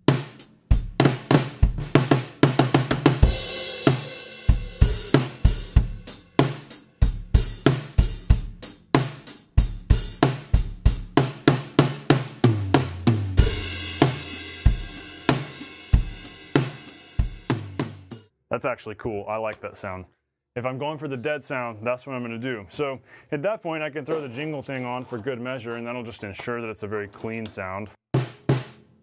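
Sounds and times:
dead-sounding snare drum: 0.0s - 18.2s, 28.1s - 29.0s
drum kit groove: 0.0s - 18.3s, 27.2s - 28.9s
cymbal crash: 3.2s - 6.7s, 13.4s - 17.4s.

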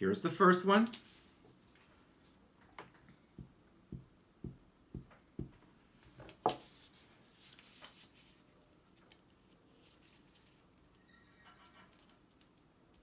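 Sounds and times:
paper rustling: 6.2s - 10.8s
paper crackle: 7.3s - 10.9s.

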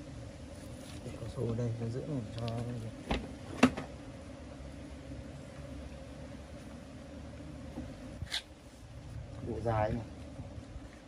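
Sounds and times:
wind rumble on microphone: 8.1s - 10.9s.

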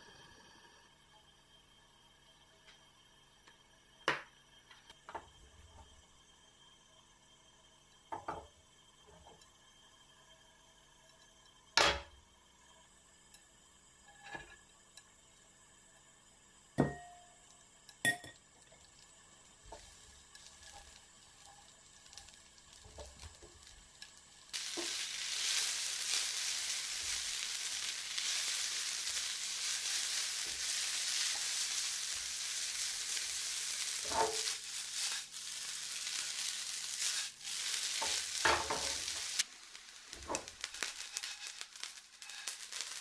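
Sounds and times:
noodles sizzling in hot oil: 0.0s - 43.0s
cookware knocking and clinking: 16.8s - 17.2s, 18.1s - 18.4s.

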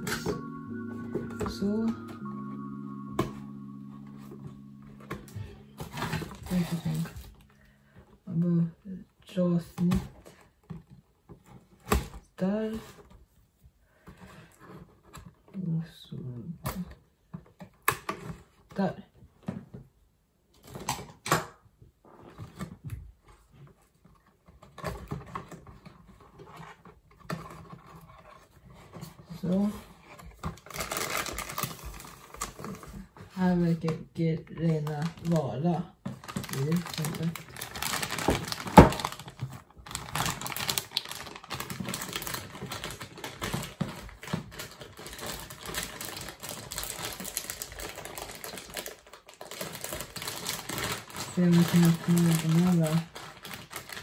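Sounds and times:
cardboard box packaging rustling: 0.0s - 8.0s, 22.2s - 54.0s
plastic bag crinkling: 4.2s - 7.9s, 27.4s - 54.0s.

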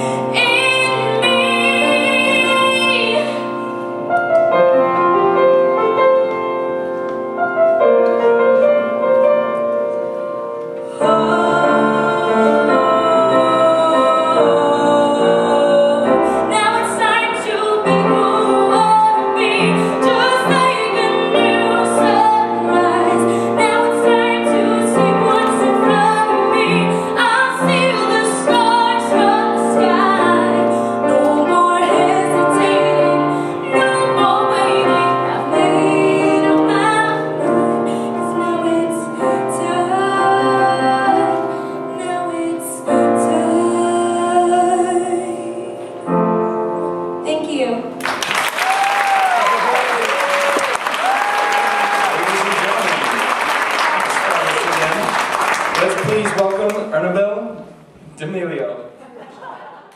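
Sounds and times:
girl singing: 0.0s - 3.5s, 10.9s - 45.8s
piano chords: 0.0s - 58.0s.

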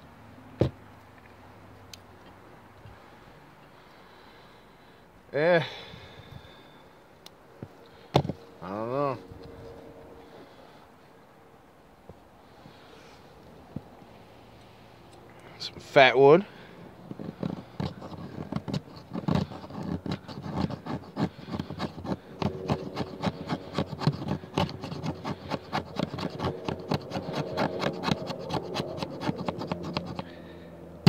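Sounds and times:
blade scraping wood stick: 17.0s - 30.6s.

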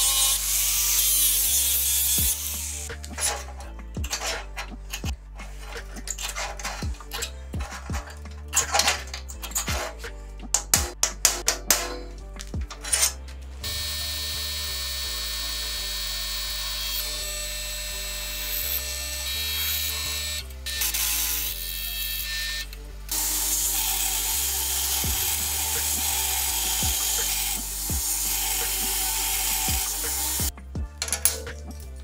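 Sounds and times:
belt grinder hissing: 0.0s - 3.5s, 23.1s - 30.5s
background music: 0.0s - 32.0s.

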